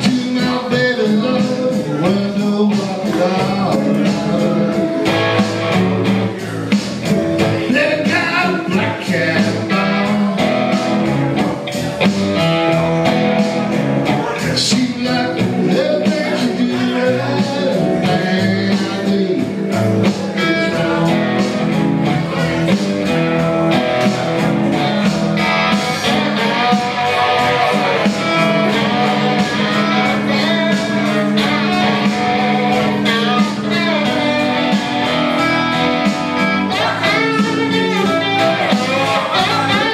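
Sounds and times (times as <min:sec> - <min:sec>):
bass and drums: 0:00.0 - 0:39.9
blues-rock guitar: 0:00.0 - 0:39.9
man singing: 0:00.0 - 0:39.9.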